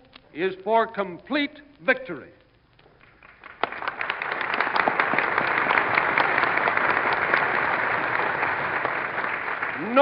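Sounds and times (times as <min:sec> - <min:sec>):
audience applauding: 0:03.0 - 0:10.0.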